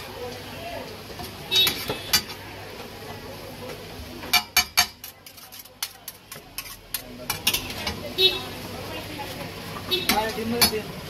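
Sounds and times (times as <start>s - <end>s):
metal spatulas scraping griddle: 4.6s - 8.0s.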